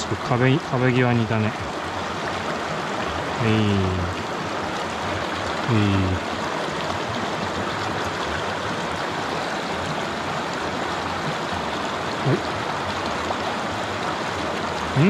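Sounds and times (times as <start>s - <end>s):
stream flowing over rocks: 0.0s - 15.0s.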